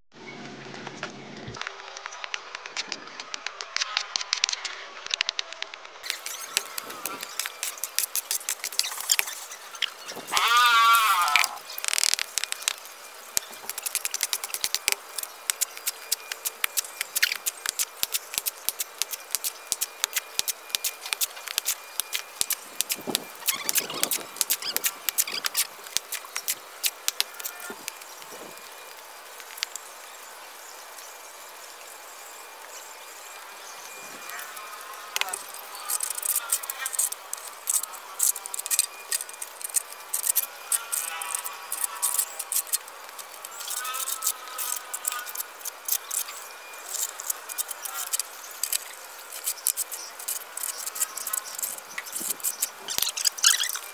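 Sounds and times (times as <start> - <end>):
wavering animal call: 8.7 - 12.2.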